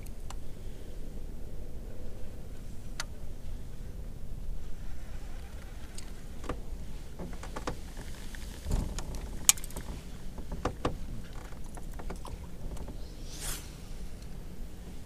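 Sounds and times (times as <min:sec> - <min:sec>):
steady low rumble: 0:00.0 - 0:15.0
short whoosh: 0:12.4 - 0:14.3.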